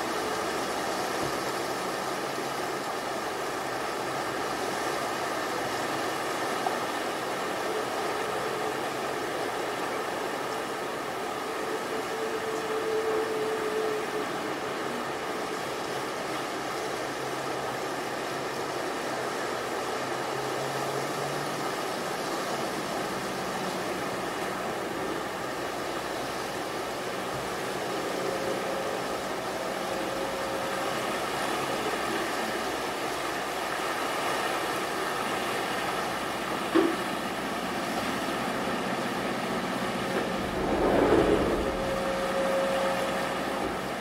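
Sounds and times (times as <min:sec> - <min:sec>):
gentle surf washing: 0:00.0 - 0:44.0
faint hum: 0:37.4 - 0:44.0.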